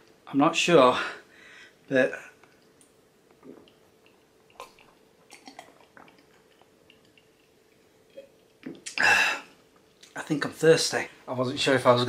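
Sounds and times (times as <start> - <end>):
man swallowing a drink: 3.3 - 7.3, 8.1 - 9.3
wet mouth sounds: 3.4 - 9.1.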